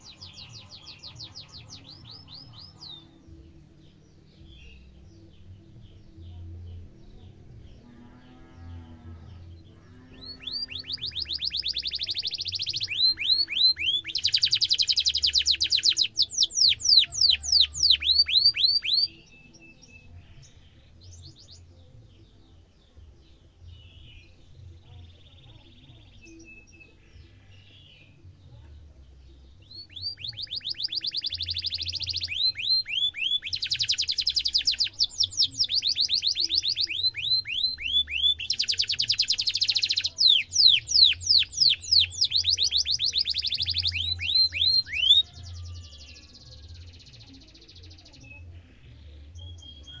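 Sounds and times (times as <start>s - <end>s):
canary singing trills: 0.0s - 3.6s, 7.3s - 22.6s, 29.6s - 50.0s.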